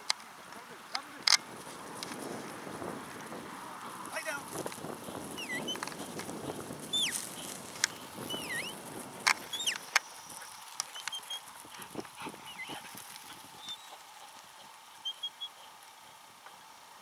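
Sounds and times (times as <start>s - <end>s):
swooping high whistles: 5.4s - 5.8s, 6.9s - 7.2s, 8.2s - 8.8s, 9.5s - 9.8s
sharp clicks: 9.2s - 10.1s.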